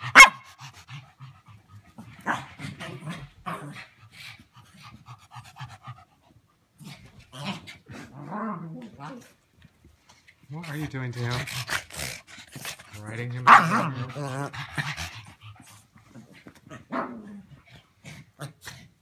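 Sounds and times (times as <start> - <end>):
dog panting: 3.9 - 7.1, 10.1 - 16.6.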